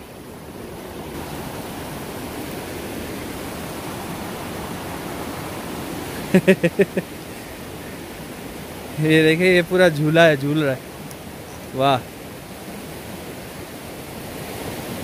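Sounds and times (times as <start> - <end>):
rocky stream rushing: 0.0 - 15.0
person's voice: 11.8 - 12.0.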